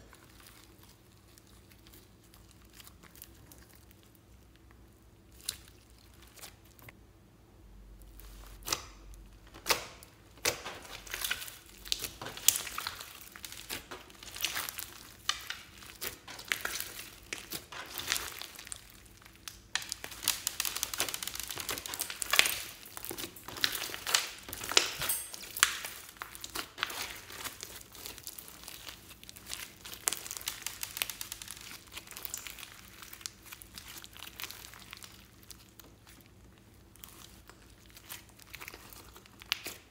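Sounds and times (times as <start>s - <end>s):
slime clicking and popping: 38.0s - 39.9s.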